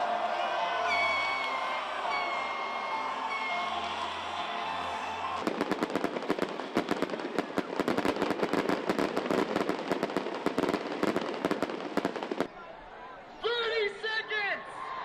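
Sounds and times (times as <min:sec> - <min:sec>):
fireworks crackling: 0:00.6 - 0:12.6.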